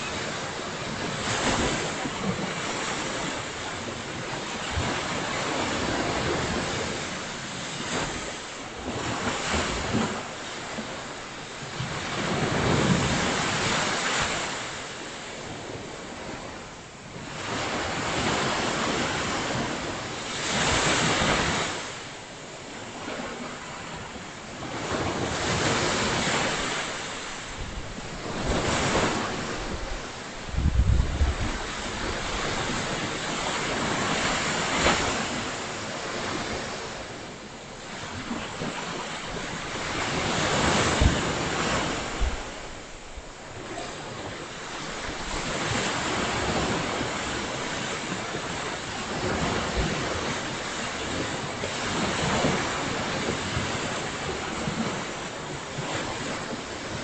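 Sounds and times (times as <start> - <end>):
ocean surf breaking: 0.0 - 22.2, 22.8 - 57.0
wind buffeting microphone: 27.5 - 37.1, 37.9 - 57.0.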